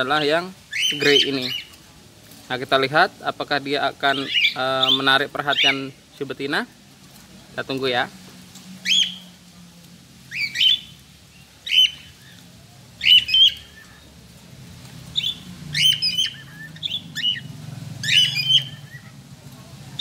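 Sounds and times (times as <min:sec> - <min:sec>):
cockatiel chirps: 0:00.7 - 0:01.7, 0:04.1 - 0:05.9, 0:08.8 - 0:09.3, 0:10.3 - 0:11.0, 0:11.6 - 0:12.4, 0:13.0 - 0:14.0, 0:15.2 - 0:19.2.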